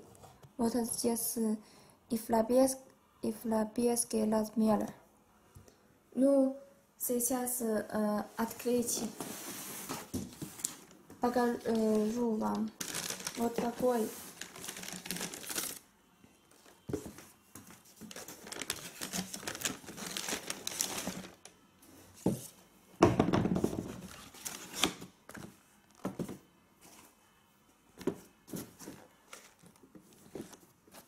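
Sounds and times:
tissue paper crinkling: 9.1s - 15.8s, 17.8s - 21.5s, 24.0s - 24.9s.

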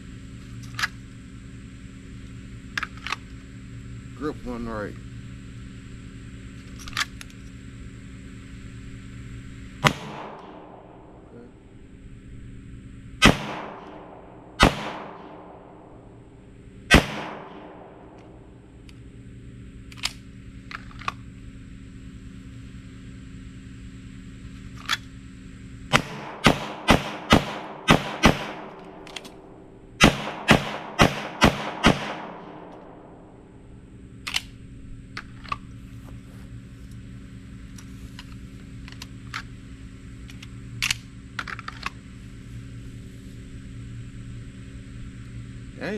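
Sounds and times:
pistol shots: 9.8s - 11.2s, 13.2s - 15.9s, 16.9s - 18.2s, 25.9s - 33.2s.

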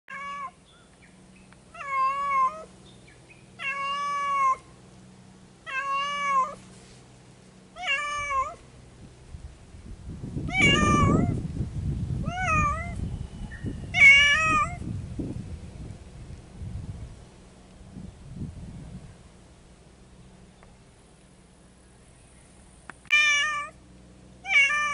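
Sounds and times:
cat meowing: 0.1s - 0.6s, 1.8s - 2.7s, 3.6s - 4.6s, 5.7s - 6.6s, 7.8s - 8.6s, 10.5s - 11.4s, 12.2s - 13.0s, 13.9s - 14.8s, 23.1s - 23.7s, 24.4s - 24.9s
low rumbling noise: 6.3s - 24.9s.

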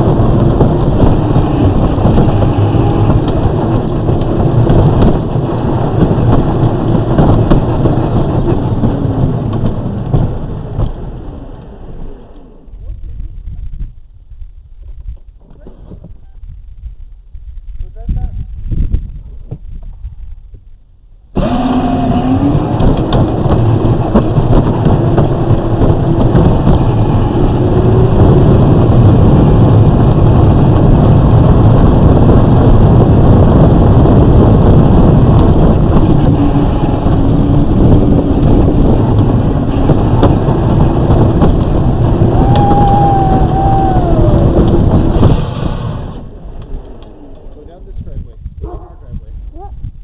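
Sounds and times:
electric motor whine: 21.4s - 24.0s.

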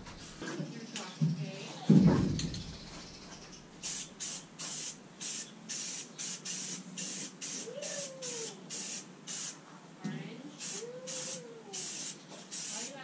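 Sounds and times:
aerosol can spraying hisses: 3.8s - 9.6s, 10.6s - 13.0s.

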